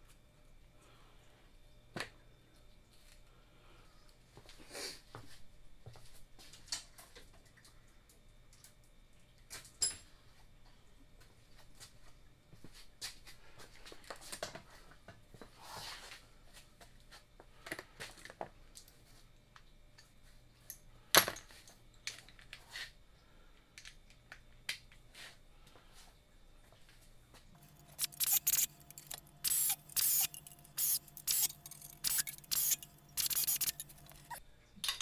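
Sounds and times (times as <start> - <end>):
clicks and clinks of small tools: 27.8 - 35.0.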